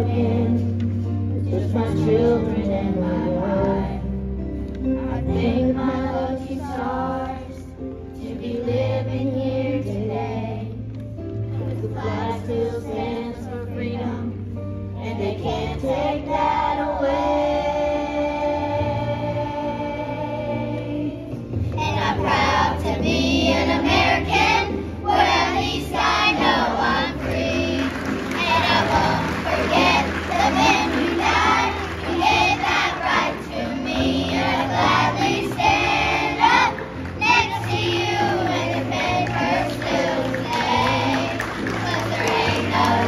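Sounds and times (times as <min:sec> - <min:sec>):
children's choir singing: 0:00.0 - 0:04.2, 0:04.9 - 0:10.8, 0:11.6 - 0:14.4, 0:15.0 - 0:43.0
instrumental accompaniment: 0:17.3 - 0:43.0.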